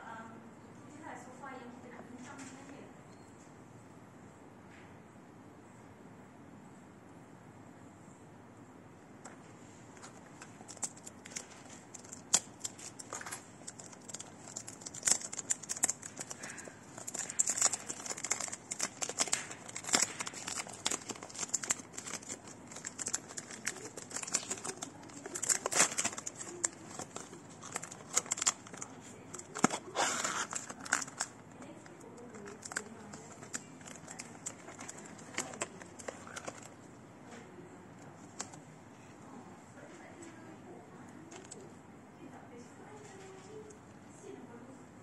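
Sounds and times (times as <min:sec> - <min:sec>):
cellophane crinkling: 0:09.4 - 0:36.9, 0:38.0 - 0:38.6, 0:41.2 - 0:41.7
knife slitting cellophane: 0:10.7 - 0:31.3.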